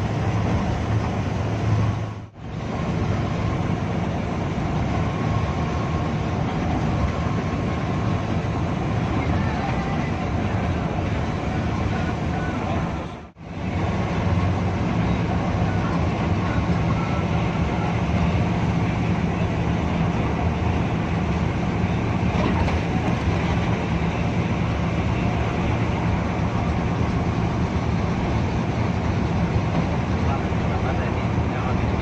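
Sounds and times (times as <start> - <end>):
bus engine drone: 0.0 - 32.0
road noise hiss: 0.0 - 32.0.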